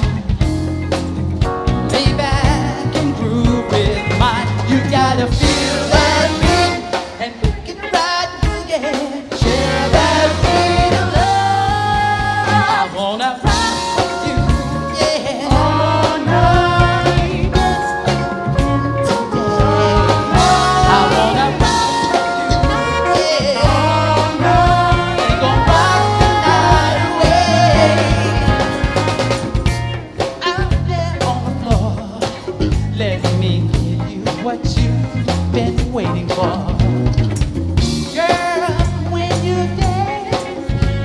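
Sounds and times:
drum kit: 0:00.0 - 0:41.0
electric guitars: 0:00.0 - 0:41.0
man singing lead: 0:01.9 - 0:37.1, 0:38.0 - 0:41.0
saxophone: 0:04.9 - 0:30.2, 0:39.8 - 0:41.0.

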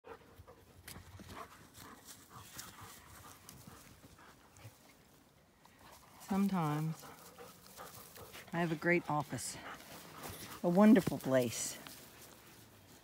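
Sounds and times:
faint soft ticks and rustles: 0:00.2 - 0:13.0.

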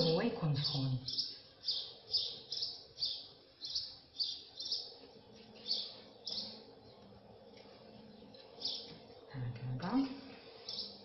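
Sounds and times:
small bird chirping: 0:00.0 - 0:06.8, 0:08.0 - 0:09.0, 0:10.6 - 0:11.0.

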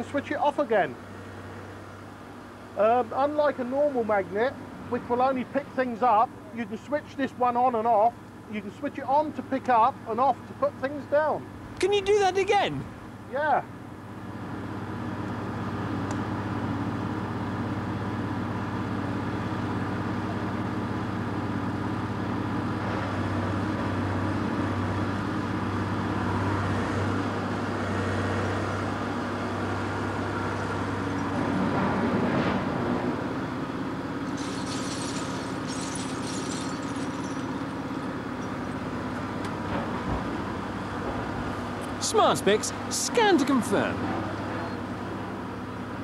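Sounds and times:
crane engine running: 0:12.9 - 0:46.0
scrap metal clattering: 0:34.3 - 0:37.8.

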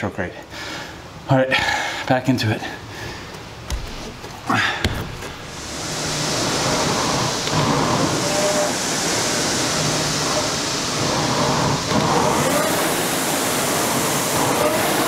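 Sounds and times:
rowing machine flywheel whooshing: 0:05.1 - 0:15.0.

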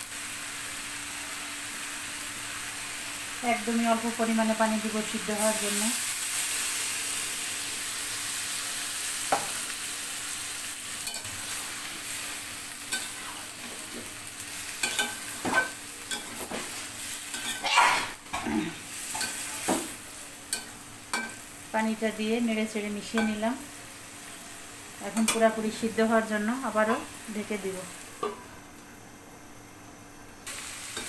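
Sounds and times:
curry sizzling in a pan: 0:00.0 - 0:28.9, 0:30.4 - 0:31.0
metal spatula scraping a pan: 0:14.8 - 0:18.5.

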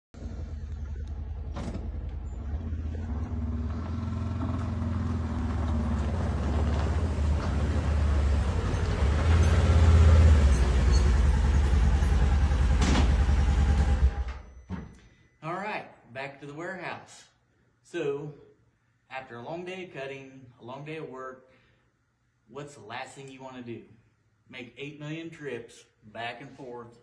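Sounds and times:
utility vehicle engine approaching: 0:00.2 - 0:14.4.

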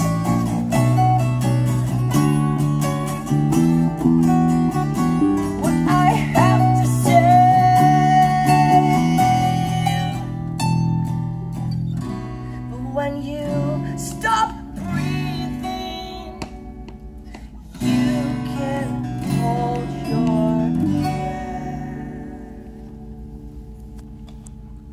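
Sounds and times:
bass guitar: 0:00.0 - 0:24.9
fingerpicked acoustic guitar: 0:00.0 - 0:24.9
man singing: 0:05.6 - 0:10.3, 0:17.8 - 0:22.6.

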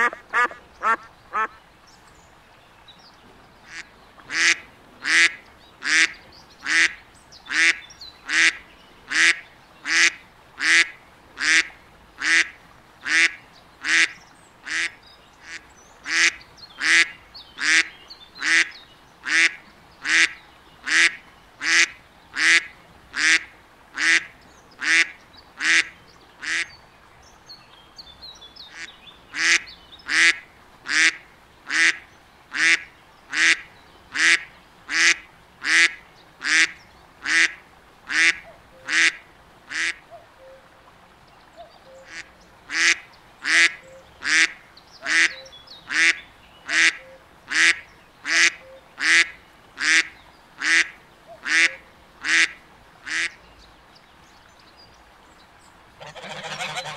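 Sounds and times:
duck quacking: 0:00.0 - 0:01.6, 0:03.7 - 0:23.4, 0:34.2 - 0:40.0, 0:42.1 - 0:52.5, 0:56.0 - 0:56.9.

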